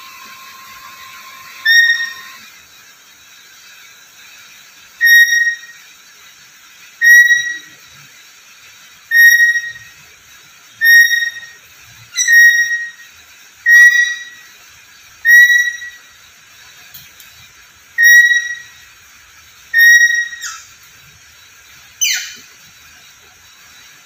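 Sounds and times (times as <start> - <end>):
parrot whistling: 0.0 - 2.5, 5.0 - 5.8, 7.0 - 7.8, 9.1 - 10.0, 10.8 - 14.5, 15.2 - 16.1, 18.0 - 18.8, 19.7 - 20.7, 22.0 - 22.5.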